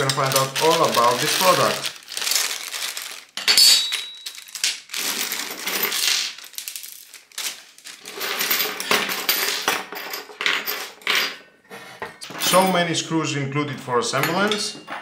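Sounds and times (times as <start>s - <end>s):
plastic bag crinkling: 0.0s - 8.6s
metal hardware clinking: 3.4s - 4.4s.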